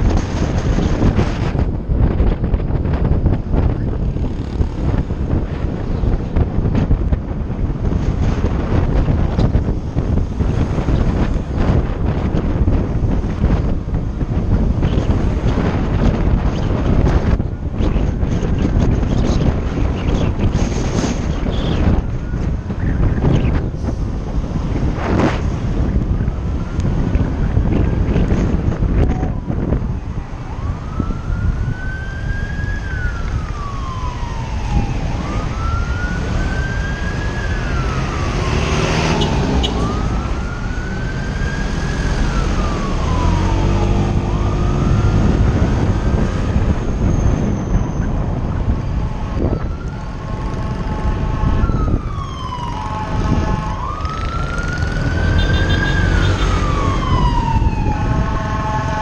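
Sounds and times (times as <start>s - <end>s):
heavy wind noise: 0.0s - 59.0s
road rumble: 0.0s - 59.0s
siren wailing: 25.7s - 59.0s.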